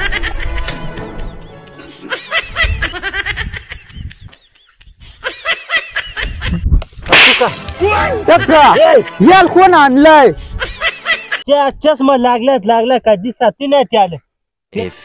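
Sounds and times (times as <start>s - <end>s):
high-pitched laughter: 0.0s - 6.6s, 10.4s - 11.5s.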